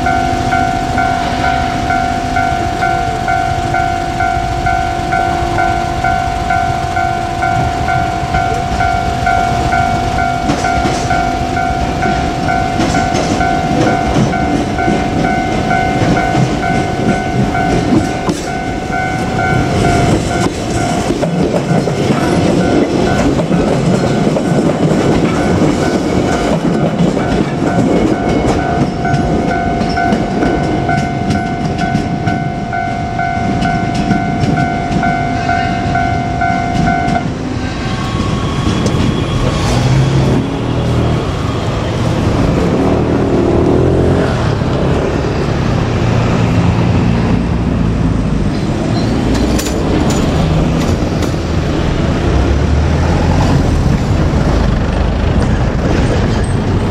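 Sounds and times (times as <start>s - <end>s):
level-crossing bell ringing: 0.0s - 39.8s
train wheels clattering over rail joints: 9.6s - 32.5s, 48.3s - 56.9s.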